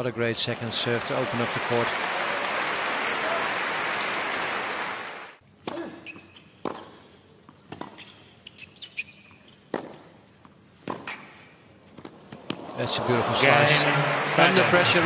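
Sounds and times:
shoe squeaks on court: 5.9s - 6.7s, 7.8s - 9.8s, 11.0s - 11.6s
racket striking tennis ball: 6.6s - 7.0s, 9.7s - 10.1s.

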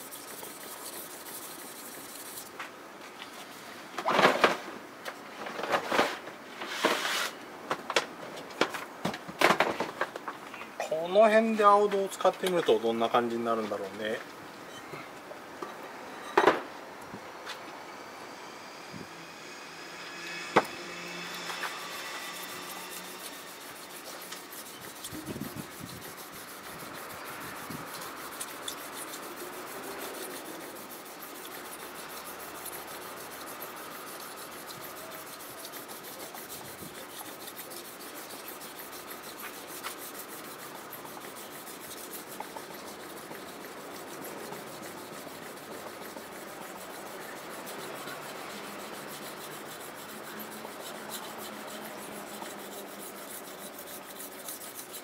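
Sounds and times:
knife blade scraping on whetstone: 0.0s - 2.6s, 20.1s - 55.0s.

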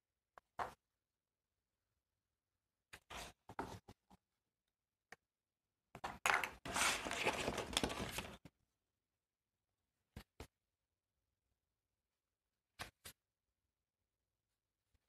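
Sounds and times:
paper rustling: 6.6s - 8.5s
paper scraping rub: 6.7s - 8.3s.

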